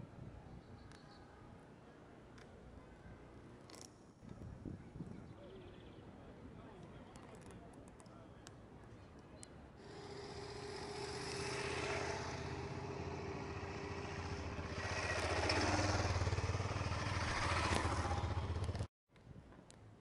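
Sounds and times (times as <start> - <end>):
motor engine running: 9.8 - 18.9.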